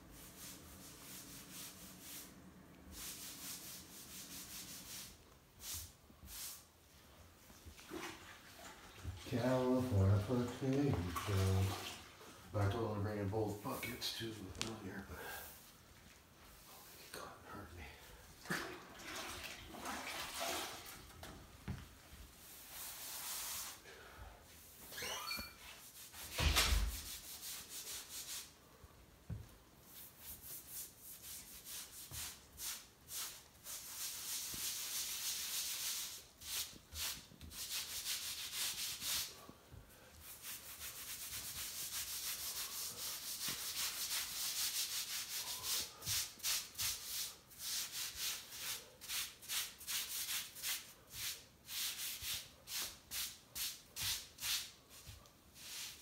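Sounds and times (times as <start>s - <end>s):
sponge scrubbing wet tile: 0.2s - 6.7s, 7.7s - 12.1s, 22.4s - 23.8s, 25.8s - 28.6s, 29.8s - 39.5s, 40.2s - 56.0s.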